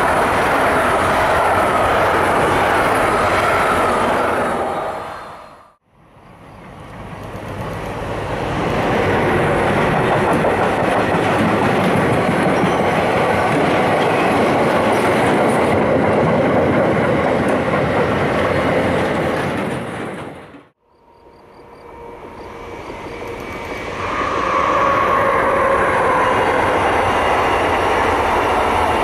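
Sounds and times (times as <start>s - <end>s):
freight train rumbling past: 0.0s - 29.0s
clattering train wheels: 9.4s - 20.8s.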